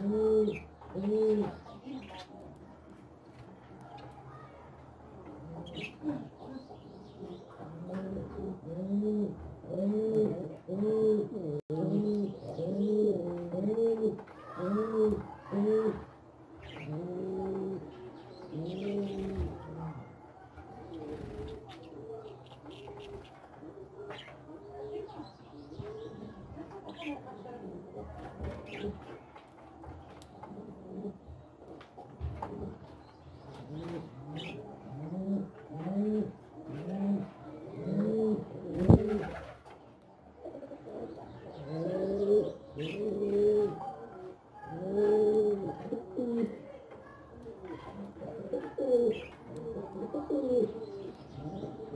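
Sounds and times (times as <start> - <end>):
pigeon cooing: 0.0 - 2.3, 7.5 - 20.2, 20.8 - 25.2, 33.6 - 39.7, 40.4 - 51.9
small birds chirping: 0.0 - 8.7, 11.7 - 51.9.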